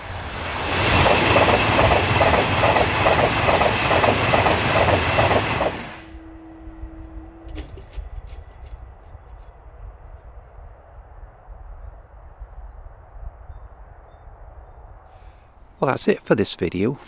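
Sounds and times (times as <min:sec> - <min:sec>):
train wheels clattering: 0:00.6 - 0:06.0.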